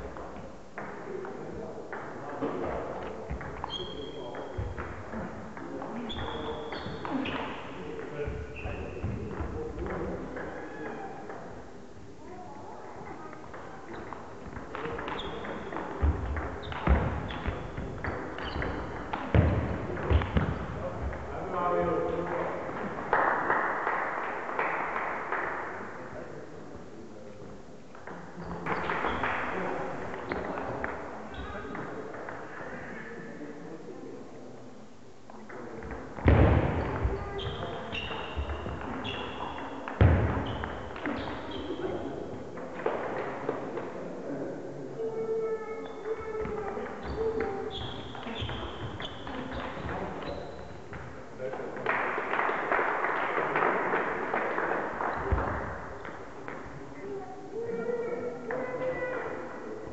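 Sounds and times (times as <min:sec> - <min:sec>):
loud echoing thuds: 0:36.2 - 0:38.8.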